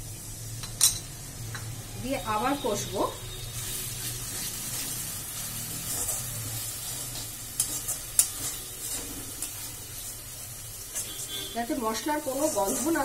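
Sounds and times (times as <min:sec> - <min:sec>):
masala sizzling in pan: 0:00.0 - 0:13.0
spatula stirring and scraping: 0:03.3 - 0:13.0.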